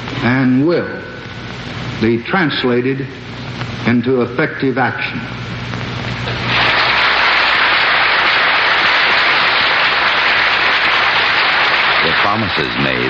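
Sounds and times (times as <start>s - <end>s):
large audience applauding: 6.4s - 13.0s.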